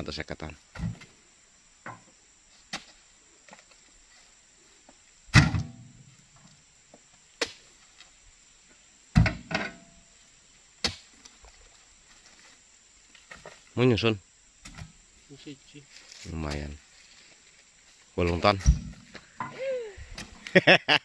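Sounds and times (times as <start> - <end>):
fruit bunches thudding into truck: 18.3 - 19.6.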